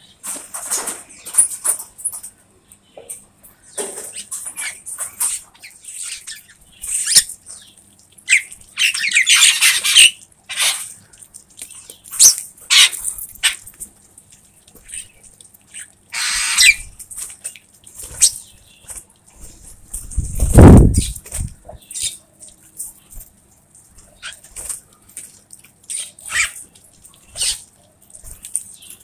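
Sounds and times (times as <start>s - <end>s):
mynas squawking and chattering: 8.3s - 11.0s, 12.2s - 13.6s, 14.8s - 17.0s, 25.8s - 27.8s.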